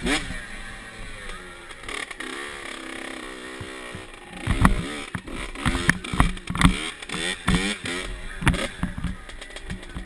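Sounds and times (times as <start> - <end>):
dirt bike engine revving: 0.0 - 10.0
sharp engine knocks: 3.6 - 10.0.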